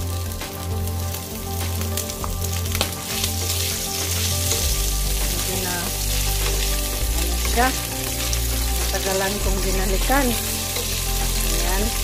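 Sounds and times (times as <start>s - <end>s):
meat sizzling in hot oil: 0.0s - 12.0s.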